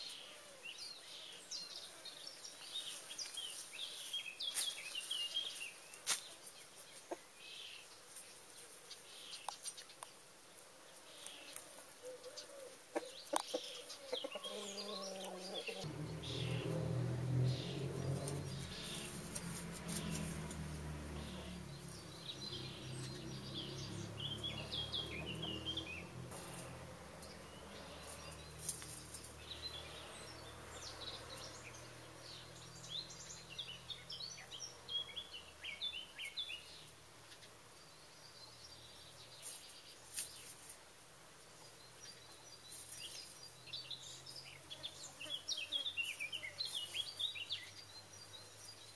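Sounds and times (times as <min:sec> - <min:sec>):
small birds chirping: 0:00.0 - 0:48.9
hens clucking: 0:12.6 - 0:15.9
low drone of held tones: 0:15.5 - 0:28.5.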